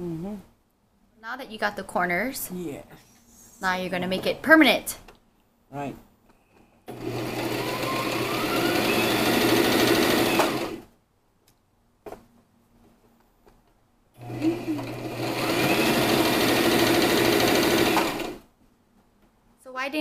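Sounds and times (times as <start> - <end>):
electric sewing machine stitching: 6.9 - 10.9, 14.2 - 18.4.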